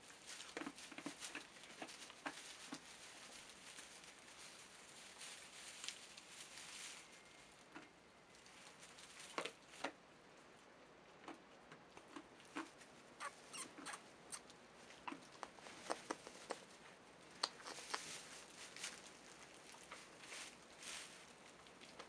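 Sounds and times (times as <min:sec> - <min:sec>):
straw bedding rustling: 0:00.0 - 0:07.6, 0:17.6 - 0:22.0.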